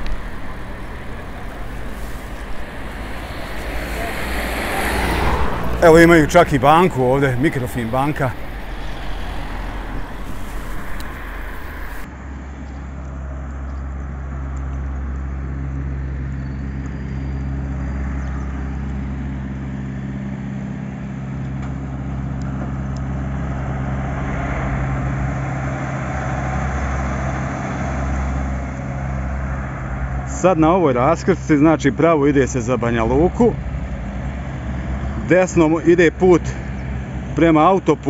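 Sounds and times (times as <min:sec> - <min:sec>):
truck diesel engine idling: 0:00.0 - 0:12.1
wind noise: 0:00.0 - 0:12.1
tyre and road noise: 0:00.0 - 0:14.8, 0:15.4 - 0:38.0.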